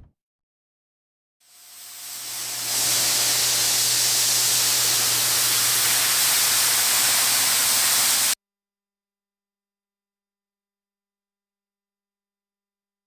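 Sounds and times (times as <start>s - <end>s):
loud steam-like hiss: 1.4s - 8.4s.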